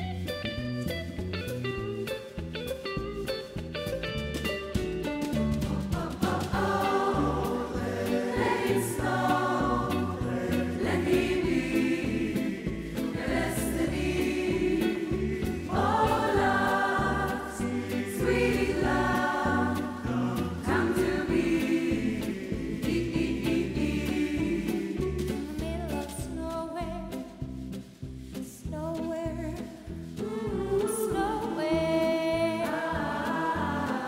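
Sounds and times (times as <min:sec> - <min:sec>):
small band accompanying: 0:00.7 - 0:09.4
choir singing in parts: 0:05.6 - 0:25.6, 0:30.2 - 0:34.0.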